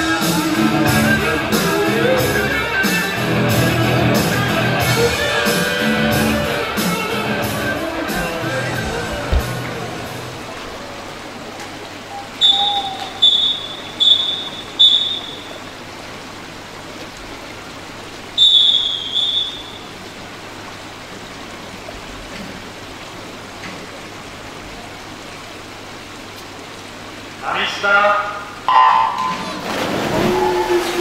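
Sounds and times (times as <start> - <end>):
pool hall hiss: 0.0 - 31.0
referee's whistle blasts: 12.4 - 15.7, 18.4 - 19.9.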